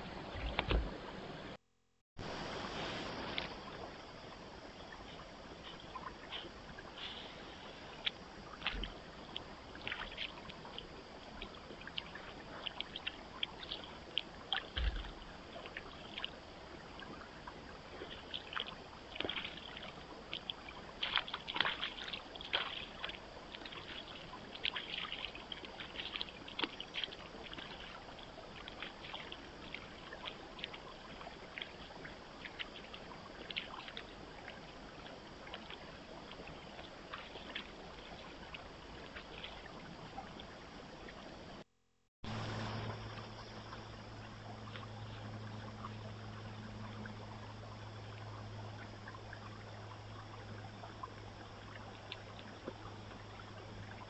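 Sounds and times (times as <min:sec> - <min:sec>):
microphone hiss: 0:02.2 - 0:06.0, 0:42.3 - 0:44.0
deer splashing through water: 0:18.0 - 0:31.8.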